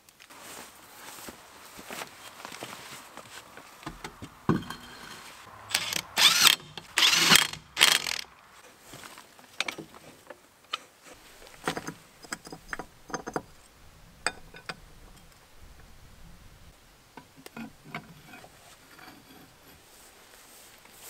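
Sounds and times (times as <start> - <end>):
ratchet wrench ratcheting: 5.7 - 8.3
tool clicks and knocks: 11.6 - 13.5.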